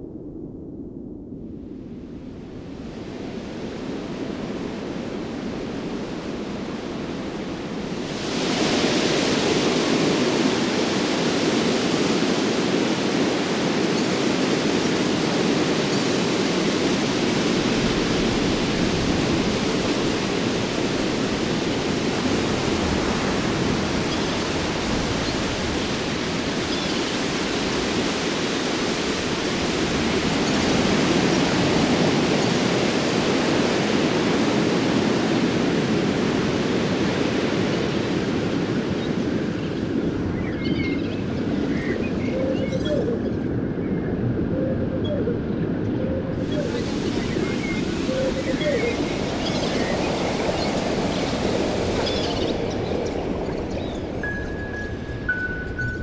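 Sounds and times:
waterfall roaring: 46.3 - 56.0.

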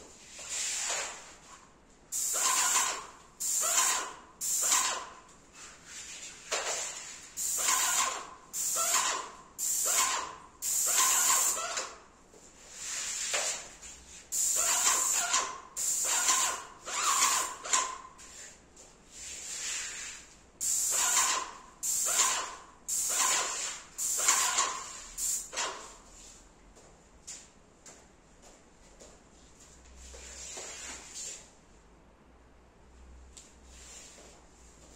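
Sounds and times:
paint spray gun hissing: 2.1 - 5.0, 7.4 - 11.6, 14.3 - 17.5, 20.6 - 25.5.

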